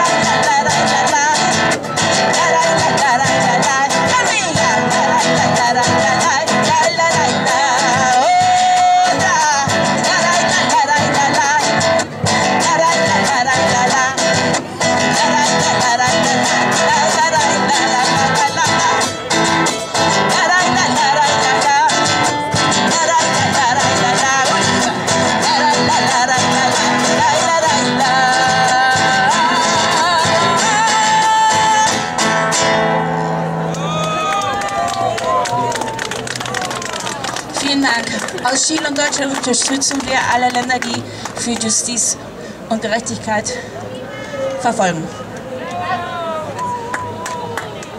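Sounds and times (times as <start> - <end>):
women singing: 0.0 - 32.2
strummed acoustic guitar: 0.0 - 33.7.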